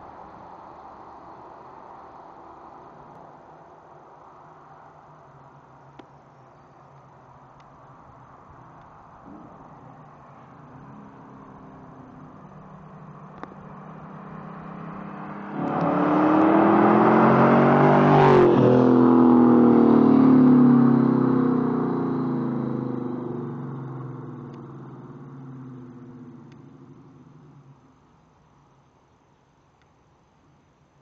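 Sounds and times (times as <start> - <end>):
car engine passing at full throttle: 9.2 - 28.0.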